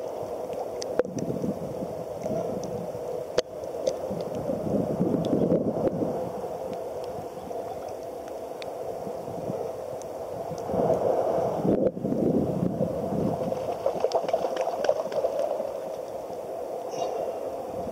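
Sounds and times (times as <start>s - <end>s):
water lapping and sloshing: 13.3s - 17.4s
small splashes: 13.5s - 16.0s.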